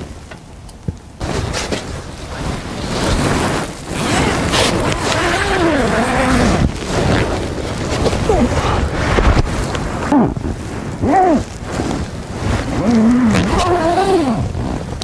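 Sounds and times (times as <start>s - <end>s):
handling noise on microphone: 0.0s - 15.0s
rustling of tent wall: 0.0s - 15.0s.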